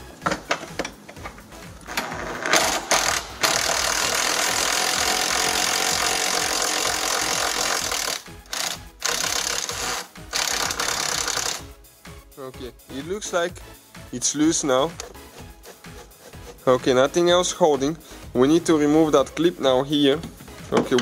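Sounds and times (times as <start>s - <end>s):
power driver spinning: 0.6s - 11.7s.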